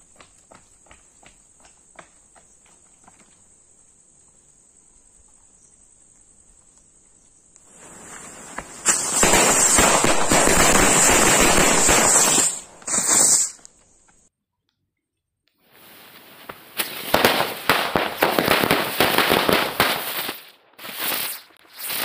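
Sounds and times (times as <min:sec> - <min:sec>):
high insect trill: 0:00.4 - 0:14.0
fuse hissing: 0:07.6 - 0:14.1
firecrackers crackling: 0:07.6 - 0:14.3, 0:15.6 - 0:22.0.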